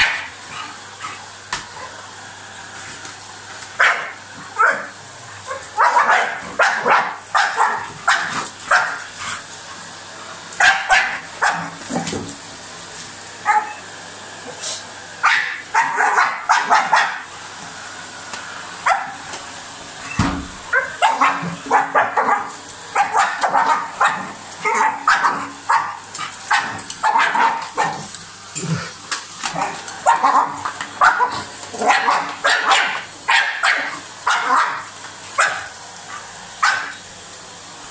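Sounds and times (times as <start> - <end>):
dog barking and yapping: 0.0 - 1.2, 3.8 - 9.4, 10.6 - 12.1, 13.4 - 13.8, 15.2 - 17.3, 18.8 - 19.3, 20.7 - 28.1, 29.4 - 37.0
vacuum cleaner humming: 0.0 - 37.9.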